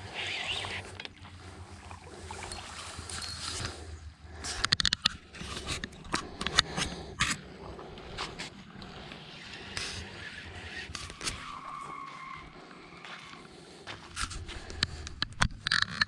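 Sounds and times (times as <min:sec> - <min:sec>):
footsteps on sand and grit: 0:11.4 - 0:14.8.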